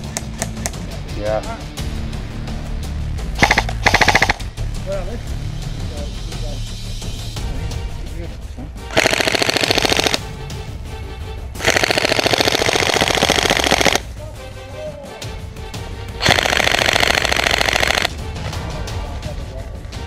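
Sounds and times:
airsoft rifle firing bursts: 3.4s - 4.4s, 8.9s - 10.2s, 11.6s - 14.0s, 16.2s - 18.1s.

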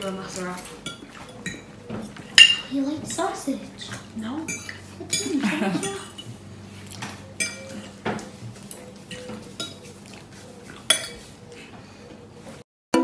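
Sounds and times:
cutlery clinking on a plate: 0.7s - 2.7s, 7.0s - 9.9s, 10.7s - 11.3s.

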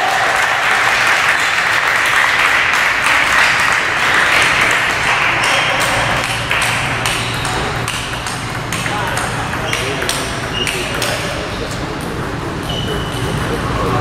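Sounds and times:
noisy hall background: 0.0s - 14.0s
table tennis ball clicks: 6.2s - 11.3s.

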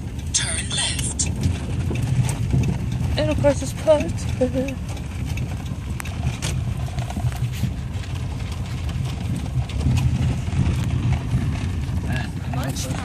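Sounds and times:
vehicle engine rumble: 0.0s - 13.0s
light clicks and rattles: 1.2s - 11.4s.

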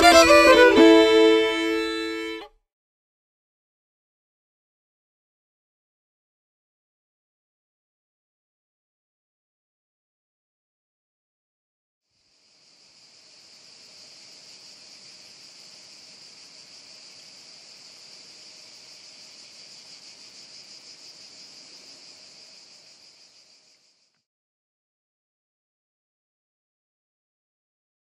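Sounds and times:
insects chirping: 12.1s - 24.2s.

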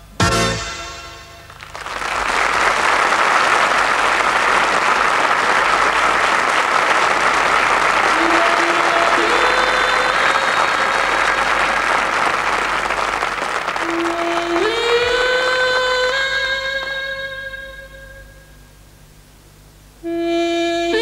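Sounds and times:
band holding chord: 0.0s - 1.7s
audience applauding: 1.4s - 16.3s.

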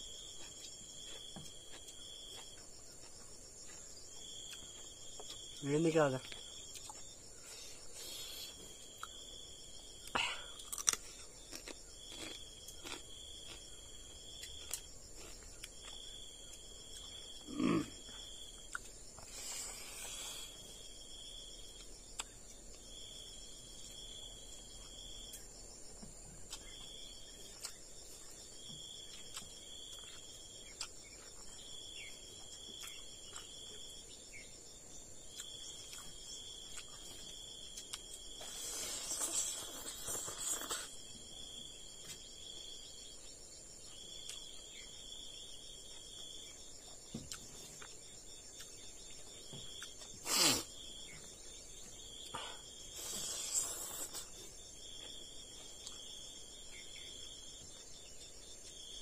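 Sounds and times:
insects trilling: 0.0s - 59.0s
person chewing and eating: 0.1s - 5.6s, 6.2s - 20.7s, 26.4s - 34.0s, 35.2s - 41.1s, 44.2s - 44.6s, 45.9s - 56.3s.

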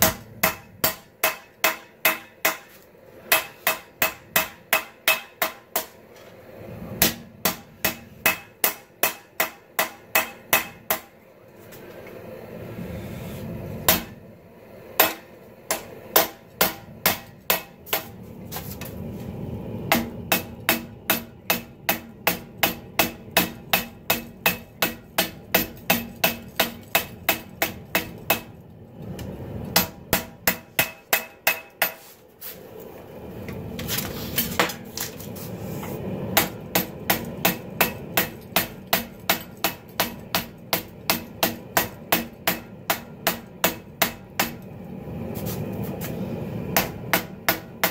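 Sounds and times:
hammer striking steel on anvil: 0.0s - 6.0s, 7.0s - 11.2s, 13.9s - 14.2s, 15.0s - 18.2s, 19.9s - 28.5s, 29.7s - 32.1s, 36.4s - 44.6s, 46.8s - 47.9s
steady low rush: 0.0s - 47.9s.

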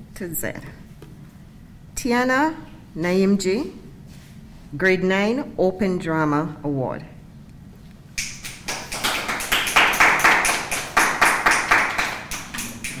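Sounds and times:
small group clapping: 8.2s - 13.0s.

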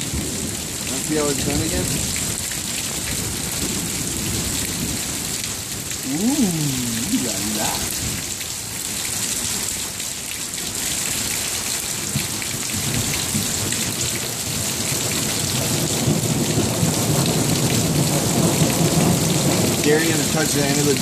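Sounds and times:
low rumble of thunder: 0.0s - 6.0s, 14.6s - 21.0s
steady rain falling: 0.0s - 21.0s.

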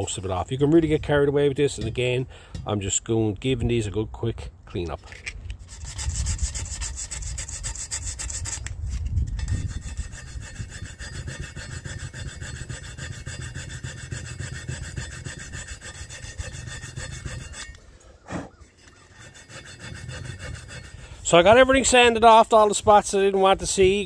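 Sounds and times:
sandpaper rubbing on metal: 5.6s - 21.4s.

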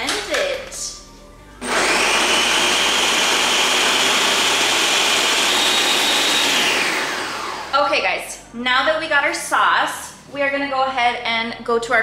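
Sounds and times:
blender motor whine: 1.6s - 7.8s.

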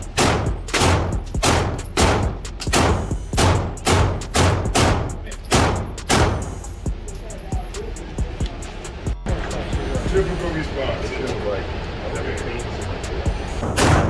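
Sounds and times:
pistol shots echoing indoors: 0.0s - 6.5s, 13.6s - 14.0s.

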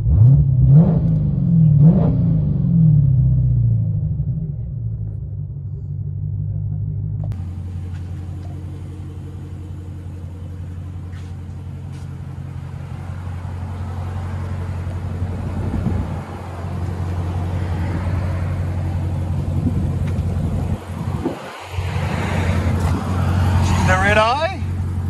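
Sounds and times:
car engine idling with exhaust rumble: 2.4s - 25.0s.

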